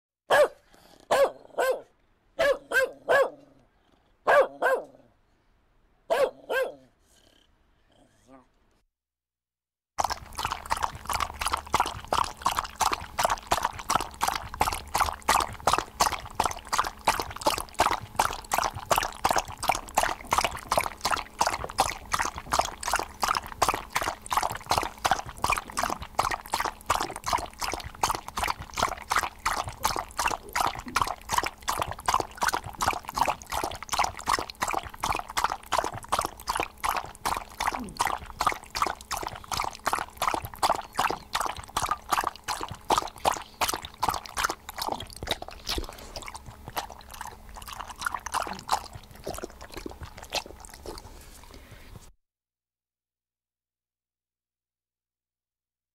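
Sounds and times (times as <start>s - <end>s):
dog lapping water: 10.0s - 52.1s.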